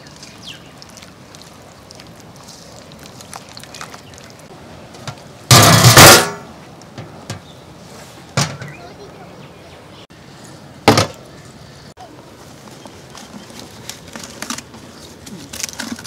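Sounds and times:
loud harsh clatter: 0:05.5 - 0:06.4.

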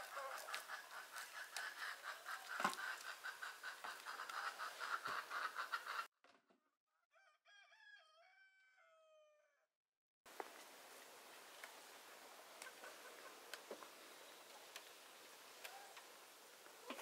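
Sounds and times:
chickens clucking: 0:00.0 - 0:06.1, 0:11.6 - 0:17.0
distant rooster crowing: 0:07.1 - 0:09.7.

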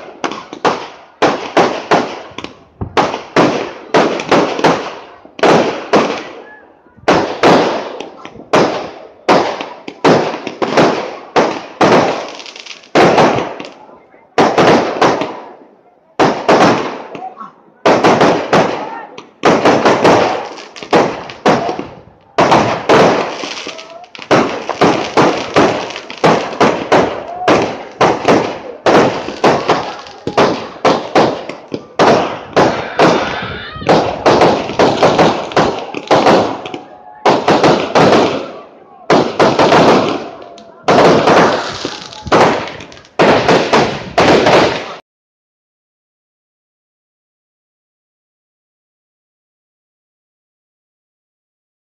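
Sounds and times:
firework shells bursting: 0:19.2 - 0:38.5.

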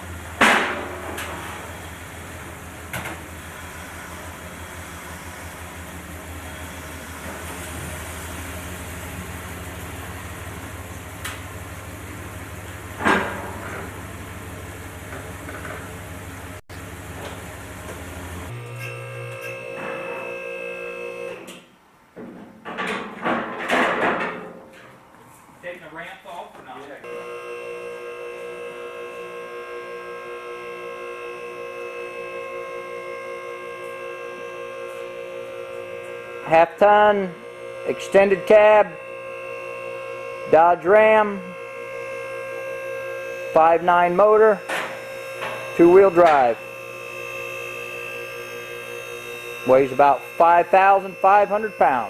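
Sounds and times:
knocks and clatter: 0:22.2 - 0:24.8
steady low hum: 0:25.0 - 0:52.0.

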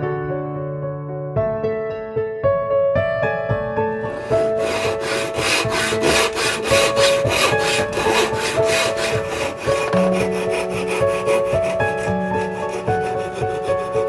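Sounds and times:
coping saw cutting: 0:04.1 - 0:14.0
hand saw cutting wood: 0:04.1 - 0:14.0.

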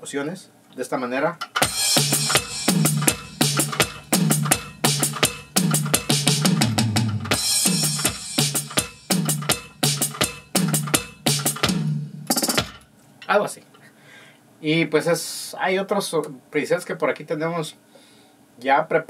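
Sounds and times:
electronic drum groove: 0:01.4 - 0:12.9.

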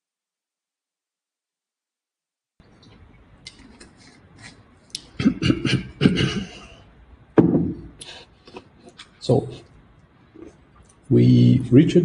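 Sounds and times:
mouth noises: 0:03.4 - 0:11.8
man clearing his throat: 0:05.1 - 0:06.8.

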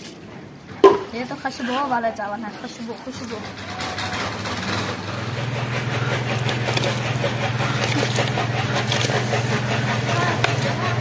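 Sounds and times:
steady low hum: 0:02.1 - 0:11.0
boiling broth hissing: 0:04.3 - 0:11.0.

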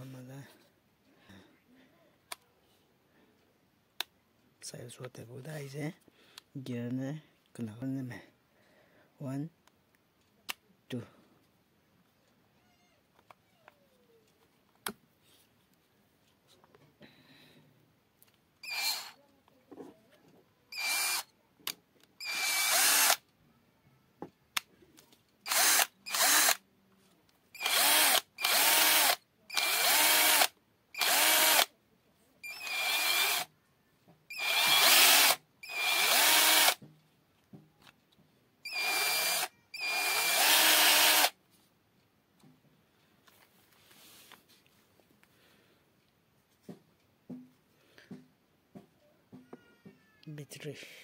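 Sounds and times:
cordless drill motor spinning: 0:18.6 - 0:19.2, 0:20.7 - 0:21.3, 0:22.2 - 0:23.2, 0:25.5 - 0:26.6, 0:27.6 - 0:31.7, 0:32.4 - 0:33.5, 0:34.3 - 0:36.8, 0:38.7 - 0:41.4.

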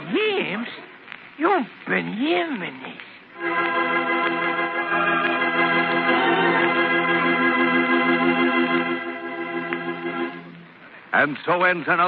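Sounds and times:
organ chord with pulsing tremolo: 0:03.4 - 0:10.8.

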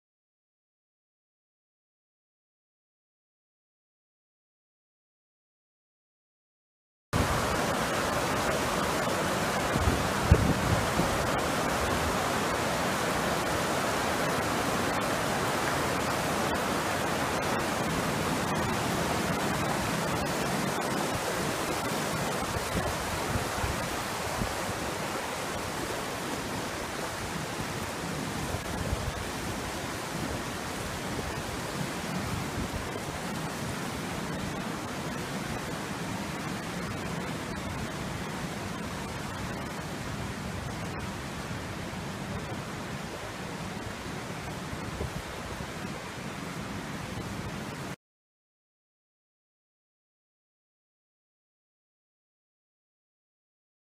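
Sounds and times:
floodwater rushing over rocks: 0:07.2 - 0:48.0.

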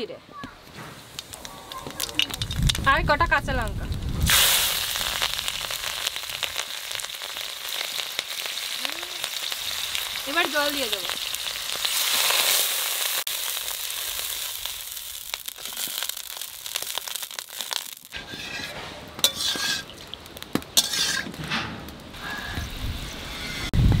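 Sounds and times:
water sizzling in hot oil: 0:01.0 - 0:21.4
metal ladle clinking in pan: 0:19.2 - 0:20.0.

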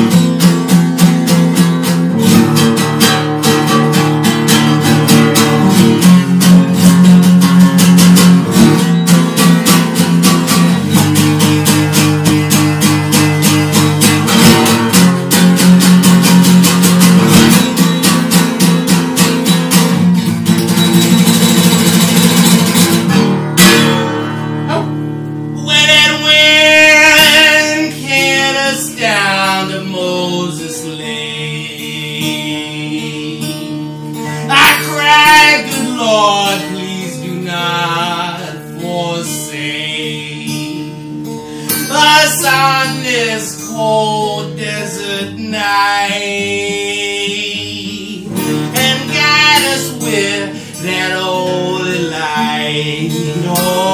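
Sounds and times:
acoustic guitar strumming: 0:00.0 - 0:53.9
man singing: 0:25.6 - 0:53.9.

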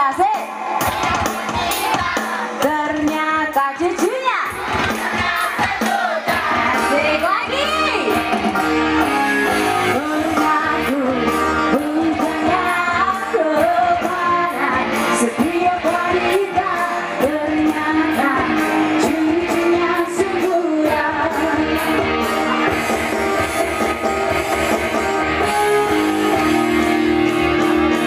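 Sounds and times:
live band: 0:00.0 - 0:28.0
steady drum beat: 0:00.4 - 0:09.2
woman singing: 0:02.0 - 0:04.6, 0:05.2 - 0:08.1, 0:09.9 - 0:22.0.

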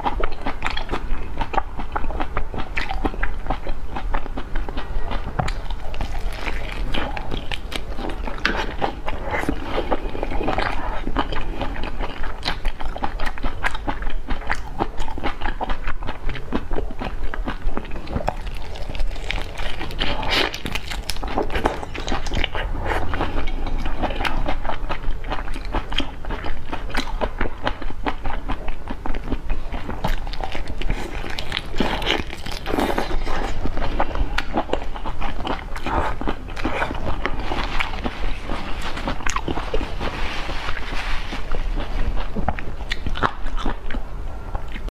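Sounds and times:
person chewing prawns: 0:00.0 - 0:44.9
prawn shells crunching: 0:05.5 - 0:09.0, 0:18.3 - 0:22.4.

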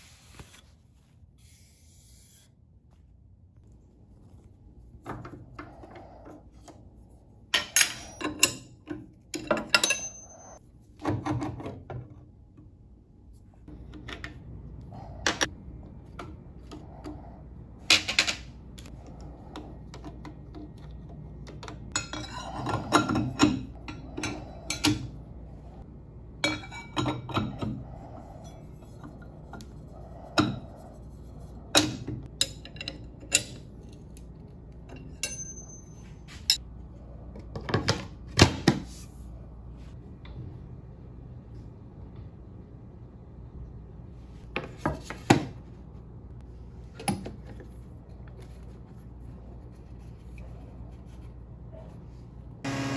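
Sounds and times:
metal clinks and clanks: 0:09.4 - 0:10.6, 0:34.9 - 0:36.6.

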